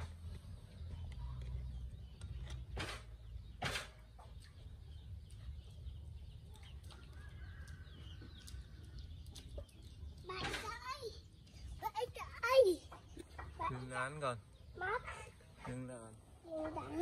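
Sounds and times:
chickens clucking: 0.2s - 11.8s
sharp knocks: 2.7s - 4.3s.

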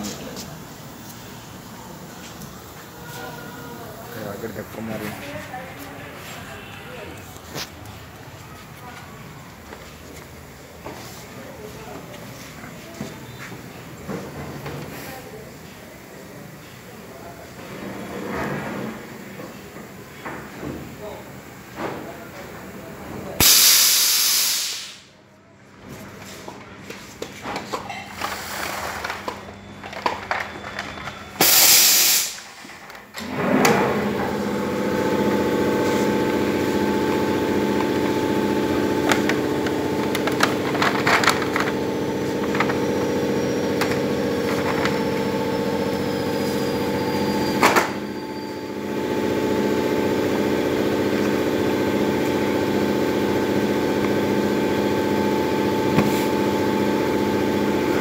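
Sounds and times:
air hiss: 23.4s - 25.1s, 31.4s - 32.6s
machine hum: 33.2s - 58.0s.

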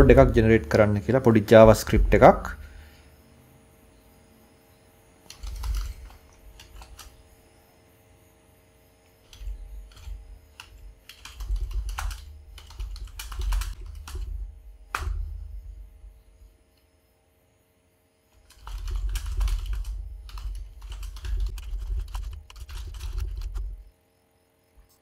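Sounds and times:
typing on computer keyboard: 5.3s - 7.2s, 9.3s - 15.2s, 18.4s - 23.8s.

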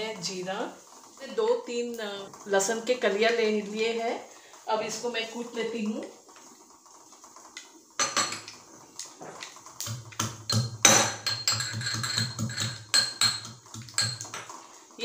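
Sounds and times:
pestle pounding in mortar: 9.8s - 14.3s.

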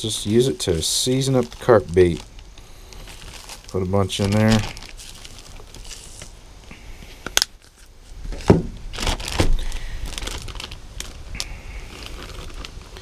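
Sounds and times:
plastic bag crinkling: 0.0s - 6.4s, 7.1s - 13.0s.

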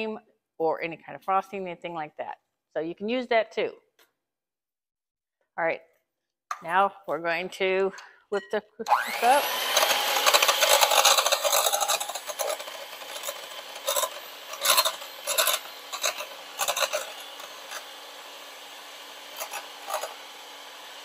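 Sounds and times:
hand mixer motor hum: 8.8s - 21.0s
beaters scraping glass bowl: 9.8s - 18.0s, 19.3s - 20.2s.

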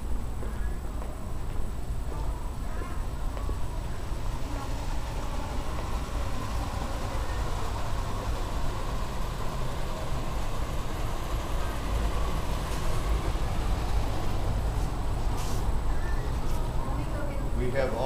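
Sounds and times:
hiss: 4.0s - 16.7s.

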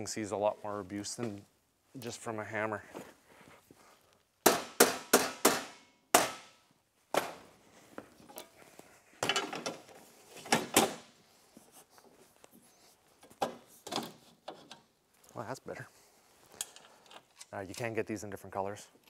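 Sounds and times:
hammer striking aluminium: 4.5s - 6.6s.

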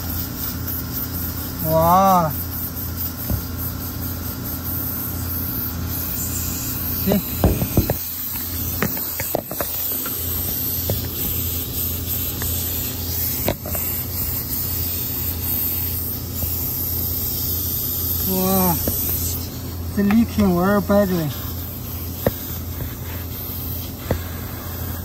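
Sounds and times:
low machine hum: 0.0s - 25.0s
knocks and scrapes on tubing: 7.4s - 11.4s
hiss: 21.3s - 25.0s.

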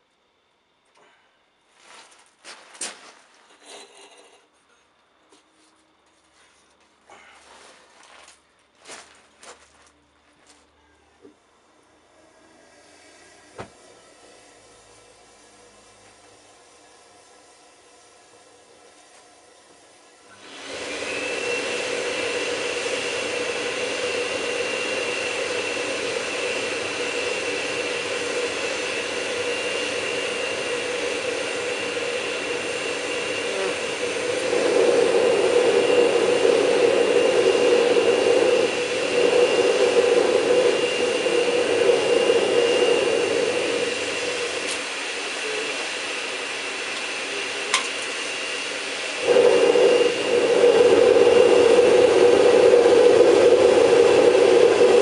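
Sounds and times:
vacuum cleaner blower whine: 7.1s - 55.0s
gas burner rushing: 12.1s - 55.0s.

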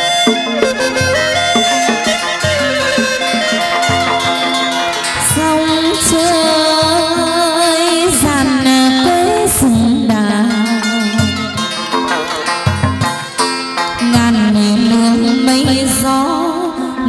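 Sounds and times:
sharp percussion hits: 0.0s - 9.8s, 10.6s - 15.1s
plucked strings: 0.0s - 17.0s.

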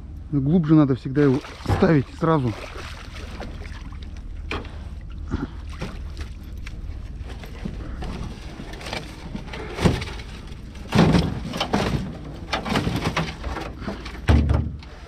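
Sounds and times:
steady low rumble: 0.0s - 15.0s
gear thumping in a boat: 1.3s - 15.0s.

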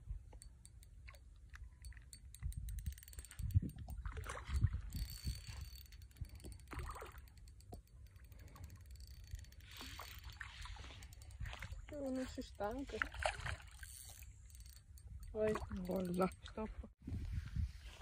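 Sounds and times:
fishing reel clicking rapidly: 0.3s - 16.5s
wind rumbling on microphone: 2.2s - 7.0s, 15.0s - 18.0s.

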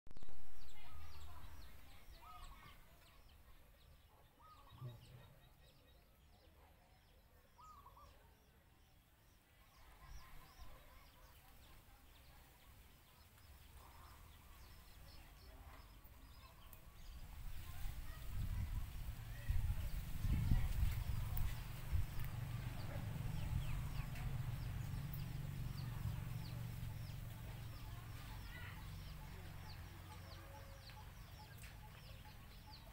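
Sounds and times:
birds chirping: 0.1s - 32.9s
low bird calls: 7.5s - 8.2s.

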